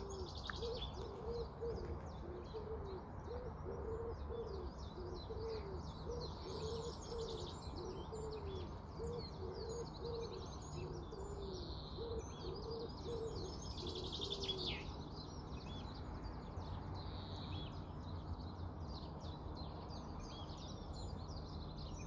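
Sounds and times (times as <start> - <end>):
pigeon cooing: 0.0 - 14.8
songbirds chirping and trilling: 0.0 - 22.0.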